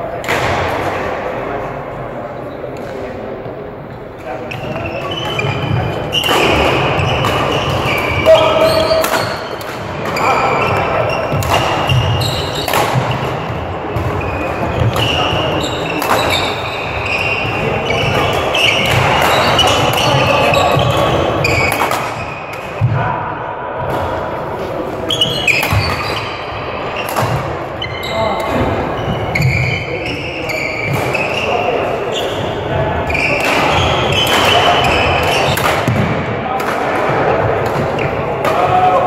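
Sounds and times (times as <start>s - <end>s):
voices in background: 0.0s - 39.0s
shoes squeaking on hall floor: 2.3s - 22.9s, 25.0s - 36.0s, 37.3s - 39.0s
badminton rackets striking shuttlecocks: 6.1s - 10.2s, 11.1s - 13.4s, 14.0s - 16.7s, 17.5s - 22.8s, 33.2s - 38.7s.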